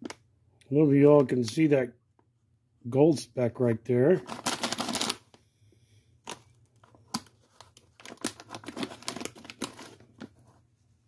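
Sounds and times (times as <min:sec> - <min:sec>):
foil bag crinkling: 0:04.2 - 0:05.3, 0:07.5 - 0:10.3.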